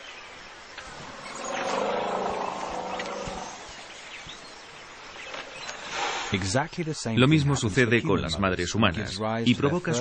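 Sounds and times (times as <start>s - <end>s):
elephant calling: 0.8s - 3.8s.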